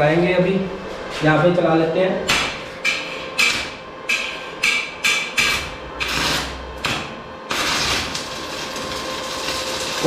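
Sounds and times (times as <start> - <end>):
welding arc crackling and hissing: 5.4 - 10.0.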